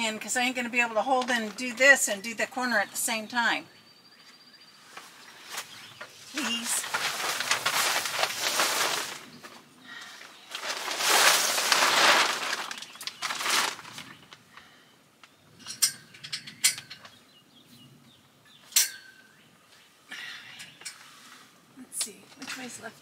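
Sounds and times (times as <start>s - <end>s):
fabric cover rustling and flapping: 5.0s - 9.7s, 10.5s - 14.4s.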